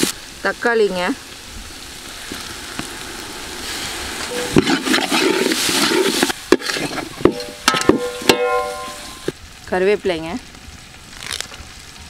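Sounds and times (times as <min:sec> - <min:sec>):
vegetables sizzling in hot oil: 0:00.0 - 0:12.0
ladle knocking and scraping pot: 0:04.3 - 0:09.3.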